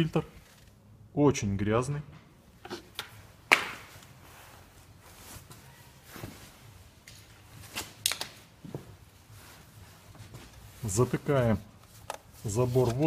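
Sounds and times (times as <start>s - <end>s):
rustling: 2.7s - 13.0s.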